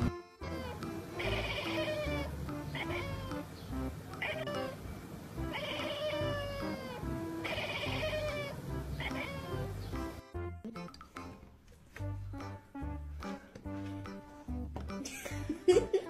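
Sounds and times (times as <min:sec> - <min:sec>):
cat meowing: 0:00.4 - 0:03.5, 0:04.2 - 0:04.8, 0:05.5 - 0:09.7.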